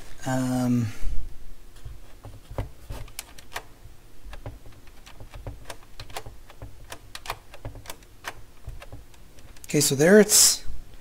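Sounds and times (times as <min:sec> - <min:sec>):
plastic and metal parts knocking: 0:01.8 - 0:03.7, 0:04.3 - 0:09.7
light mechanical clicks and taps: 0:04.3 - 0:09.8.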